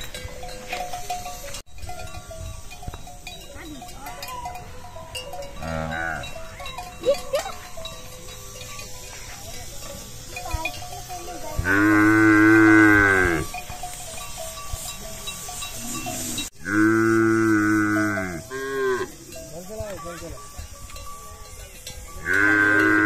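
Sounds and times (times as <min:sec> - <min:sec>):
water buffalo mooing: 0:05.6 - 0:06.4, 0:11.6 - 0:13.6, 0:15.8 - 0:19.3, 0:22.2 - 0:23.0.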